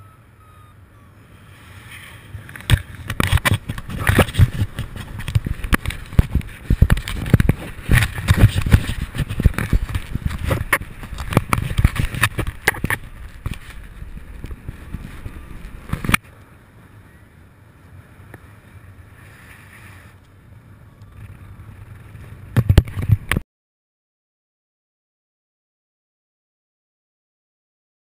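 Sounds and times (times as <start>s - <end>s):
wind buffeting microphone: 1.7s - 19.3s.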